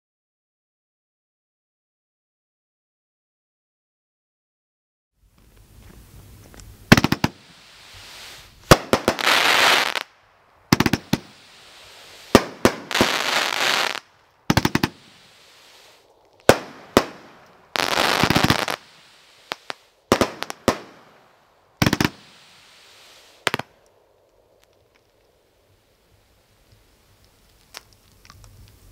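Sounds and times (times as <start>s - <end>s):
crackling firework stars: 5.2s - 28.9s
firework bangs: 6.9s - 23.8s.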